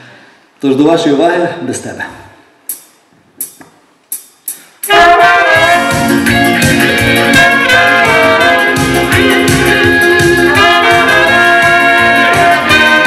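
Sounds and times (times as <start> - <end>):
sharp count-in clicks: 2.7 - 4.6
small band playing: 4.5 - 13.0
saxophone and trumpet melody: 4.8 - 13.0.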